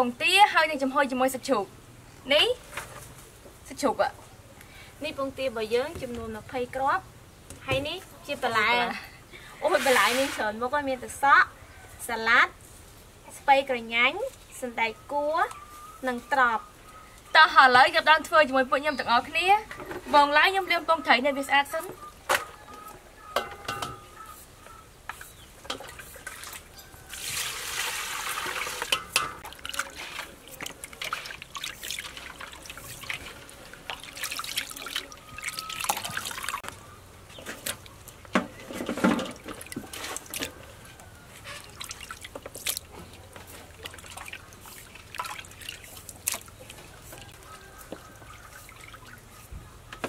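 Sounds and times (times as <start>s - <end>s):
water dripping: 24.7s - 36.8s, 39.2s - 49.4s
water splashing in steel bowl: 25.6s - 36.7s, 41.4s - 49.4s.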